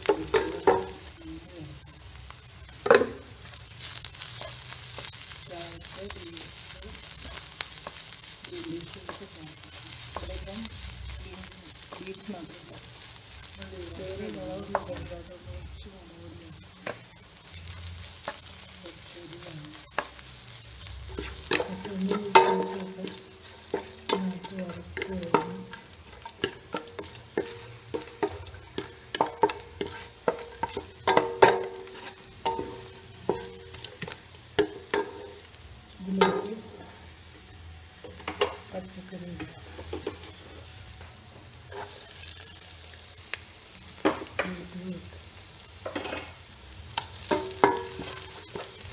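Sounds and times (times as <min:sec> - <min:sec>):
food sizzling in hot oil: 0:00.0 - 0:48.9
spatula scraping a pan: 0:21.1 - 0:35.4, 0:45.8 - 0:46.4.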